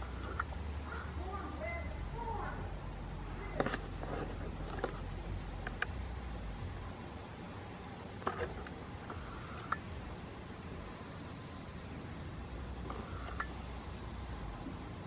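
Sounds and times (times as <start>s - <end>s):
high-pitched insect drone: 0.0s - 15.0s
faint clicks: 8.2s - 9.9s, 12.8s - 13.6s.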